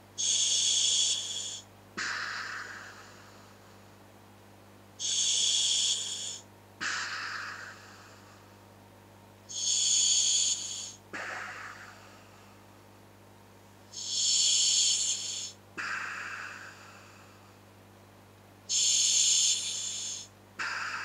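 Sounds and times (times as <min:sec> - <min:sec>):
air hissing through regulator: 0:00.2 - 0:02.8, 0:05.0 - 0:07.0, 0:14.0 - 0:16.6, 0:18.7 - 0:21.0.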